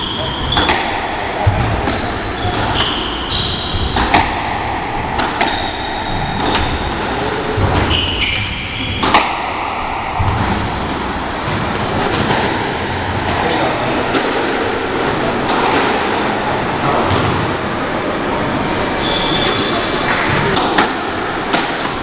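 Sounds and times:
squash ball smacking walls: 0.0 - 14.7
shoes squeaking on wooden floor: 1.8 - 4.2.

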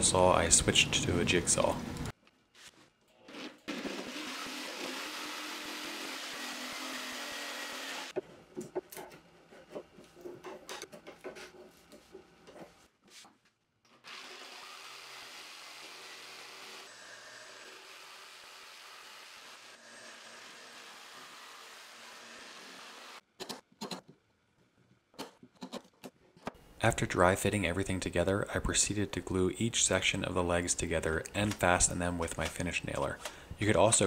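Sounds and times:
electric jigsaw sawing wood: 3.7 - 8.2, 14.0 - 23.2.

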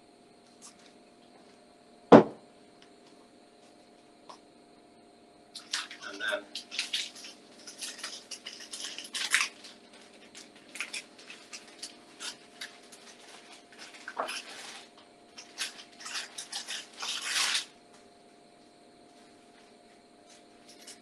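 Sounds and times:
rustling of things handled: 5.6 - 17.8, 19.1 - 21.0.

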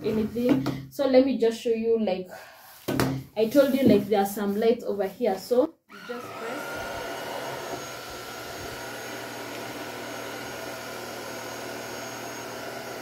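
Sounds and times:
stick vacuum running: 5.9 - 13.0.

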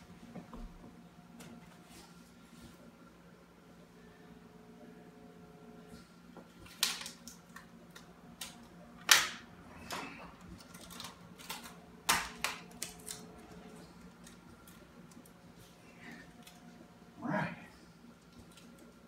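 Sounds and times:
sharp tape snaps and clicks: 10.6 - 15.4.

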